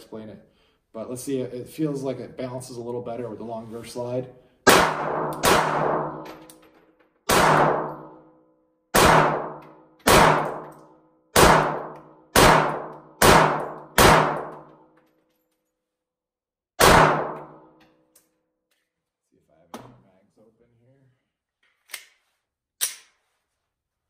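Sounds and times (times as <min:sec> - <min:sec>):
pistol shots: 0:04.7 - 0:06.5, 0:07.3 - 0:08.2, 0:08.9 - 0:10.8, 0:11.4 - 0:14.7, 0:16.8 - 0:17.6.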